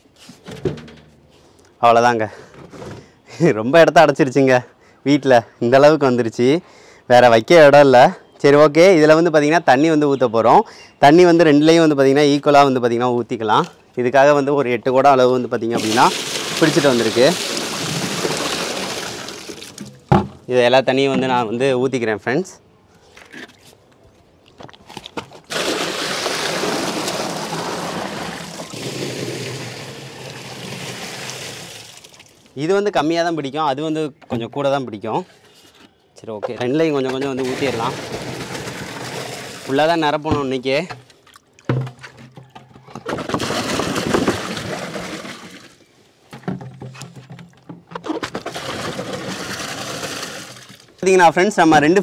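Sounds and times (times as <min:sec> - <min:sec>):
water pouring into plastic box: 0:15.8 - 0:20.0, 0:25.5 - 0:32.3, 0:37.4 - 0:40.2, 0:43.2 - 0:45.8, 0:48.3 - 0:51.0.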